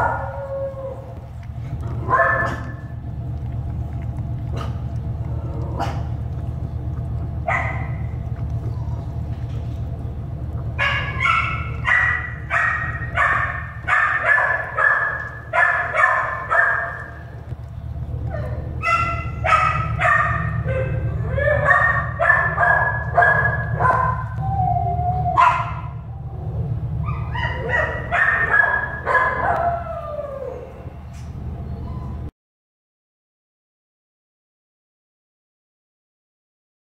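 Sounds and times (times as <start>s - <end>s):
dog barking: 0.0s - 0.4s, 2.0s - 2.9s, 7.4s - 8.1s, 10.8s - 17.3s, 18.8s - 24.4s, 25.3s - 26.0s, 27.0s - 29.8s
low hum: 0.0s - 32.3s
dog whining: 7.5s - 9.8s, 18.1s - 32.3s.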